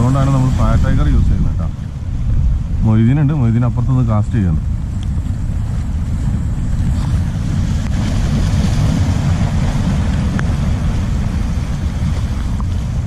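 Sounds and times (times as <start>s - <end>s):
sea waves breaking on rocks: 0.0s - 13.0s
wind buffeting microphone: 0.0s - 13.0s
faint ticks: 4.9s - 5.3s.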